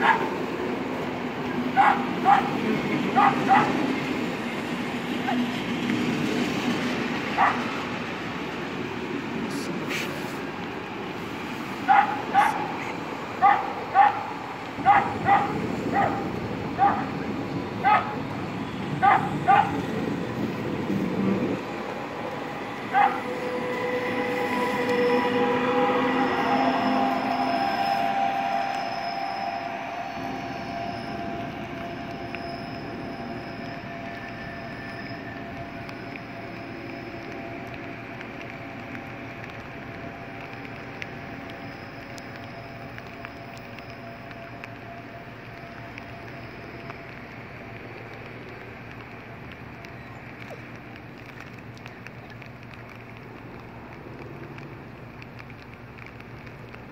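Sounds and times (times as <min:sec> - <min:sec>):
dog barking: 0:00.0 - 0:00.3, 0:01.8 - 0:02.6, 0:03.2 - 0:03.8, 0:07.4 - 0:07.6, 0:11.9 - 0:12.7, 0:13.4 - 0:16.2, 0:16.8 - 0:17.1, 0:17.8 - 0:18.2, 0:19.0 - 0:19.8, 0:22.9 - 0:23.2
train rolling past: 0:00.0 - 0:56.9
high wheel squeal: 0:21.8 - 0:37.2.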